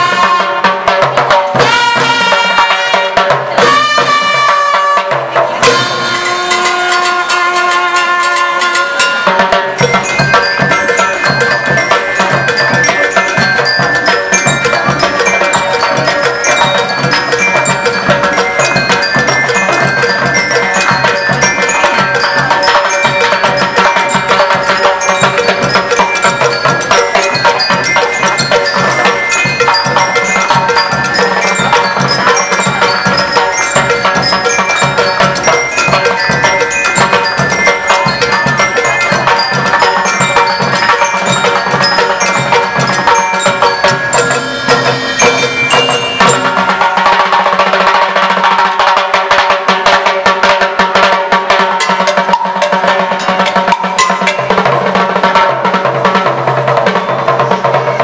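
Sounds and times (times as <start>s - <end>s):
bass drums: 0.0s - 8.0s, 8.6s - 48.5s
bell lyres playing melody: 0.0s - 58.0s
drum kit: 0.0s - 58.0s
snare drums: 0.0s - 58.0s.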